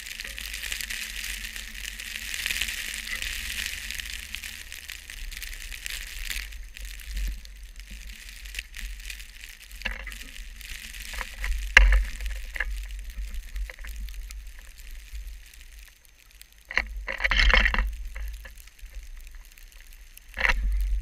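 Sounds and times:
wind rumble on microphone: 0.0s - 15.9s, 16.7s - 21.0s
blowing snow hissing and pattering: 0.0s - 16.8s.

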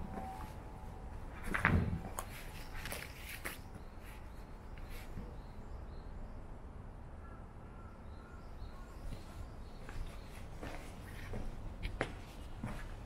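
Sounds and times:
soft footsteps: 0.0s - 5.3s, 9.1s - 13.0s
distant bird chirps: 7.2s - 11.9s.

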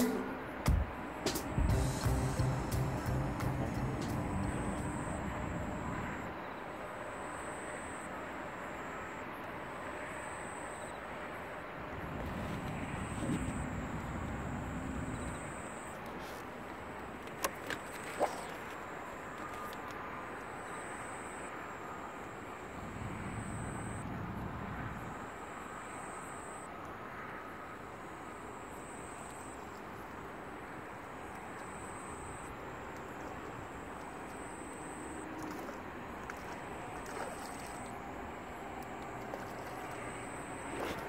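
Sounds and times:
distant traffic hum: 0.0s - 41.0s
low rumble: 0.8s - 6.2s.

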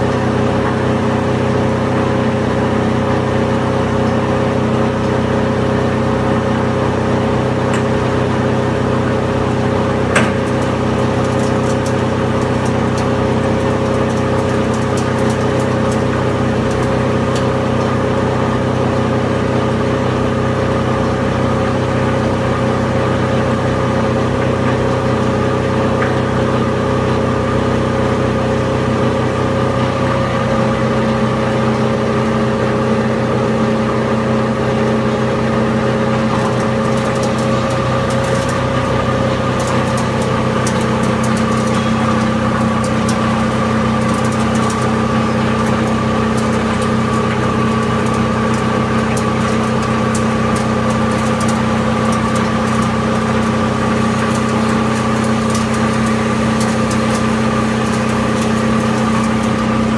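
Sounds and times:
loud machine hum: 0.0s - 59.9s
sharp ticks and crackles: 10.2s - 17.9s, 36.4s - 59.9s.

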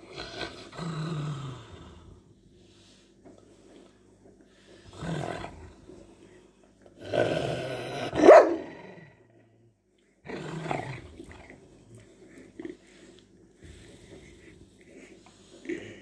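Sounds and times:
dog growling: 0.0s - 2.2s, 4.6s - 6.2s, 7.0s - 9.3s, 10.2s - 16.0s.

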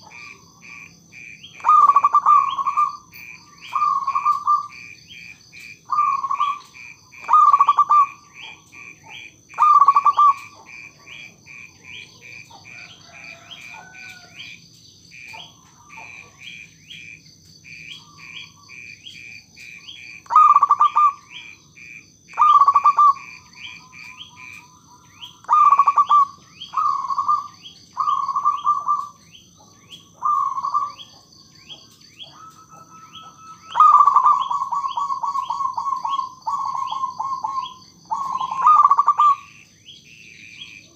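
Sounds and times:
dove cooing: 0.0s - 14.6s, 15.2s - 40.9s.

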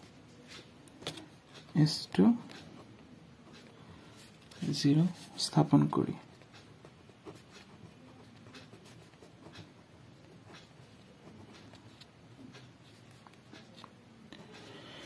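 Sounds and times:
pen scratching on paper: 6.3s - 14.8s.

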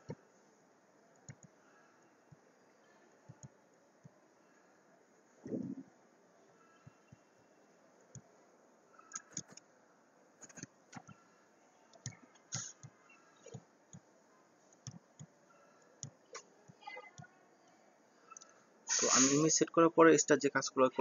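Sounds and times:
computer mouse clicks: 1.2s - 1.5s, 9.0s - 9.6s, 10.4s - 11.2s, 11.9s - 14.0s
keyboard keystrokes: 9.1s - 9.6s.

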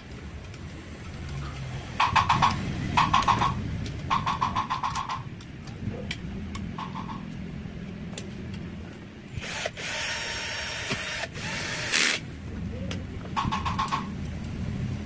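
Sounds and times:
loud steady rushing noise: 0.0s - 15.0s.

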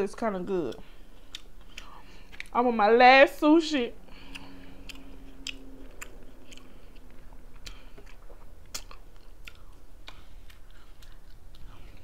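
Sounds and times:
person chewing food: 0.7s - 2.6s, 4.1s - 12.0s
sharp mouth clicks: 4.2s - 11.4s.

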